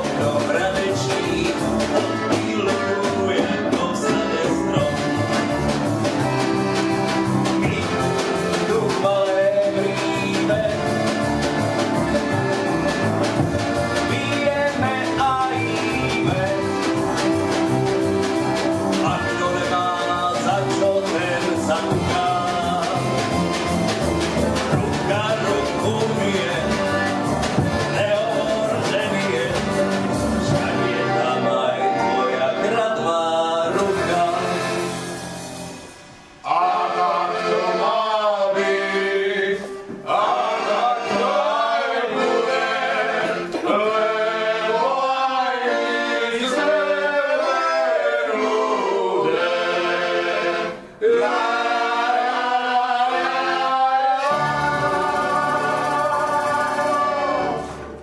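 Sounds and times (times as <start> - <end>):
man singing into a microphone: 0.0 - 5.2, 7.6 - 11.0, 14.0 - 16.8, 19.0 - 23.2, 24.8 - 34.8
voices singing: 0.0 - 35.1, 36.4 - 58.0
double bass: 0.0 - 36.3
piano: 0.0 - 37.3
accordion: 0.0 - 58.0.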